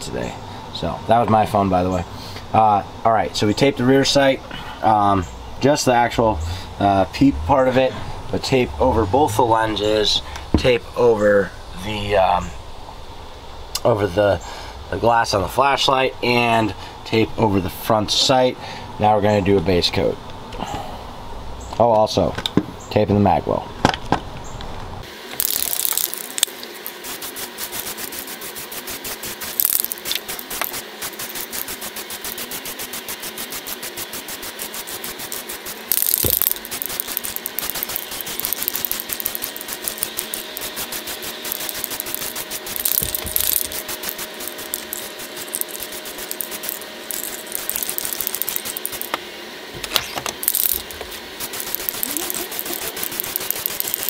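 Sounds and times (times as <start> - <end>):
spray paint can hissing: 25.0 - 49.2, 49.8 - 54.0
fast even clicking: 28.8 - 49.2, 50.4 - 54.0.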